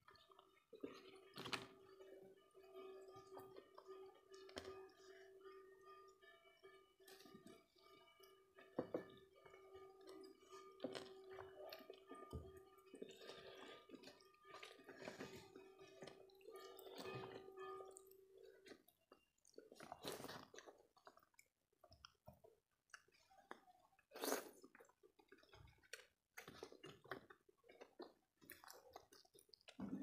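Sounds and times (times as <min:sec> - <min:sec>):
quiet background music: 0:00.0 - 0:21.4
chewing: 0:00.1 - 0:02.1, 0:09.0 - 0:30.0.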